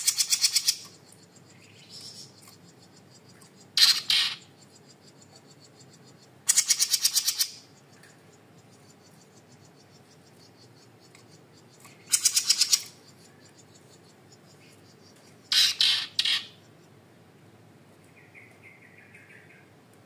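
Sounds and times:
songbird trilling: 0.0 - 17.0, 18.1 - 19.7.

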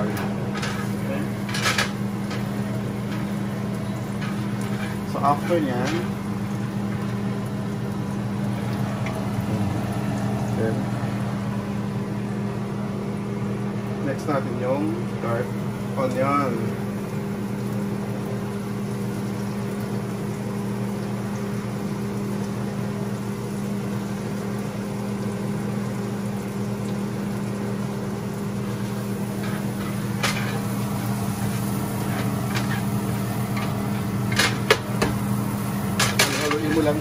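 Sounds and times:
appliance motor hum: 0.0 - 37.0
spatula scraping grill pan: 4.2 - 6.1, 29.0 - 35.2.

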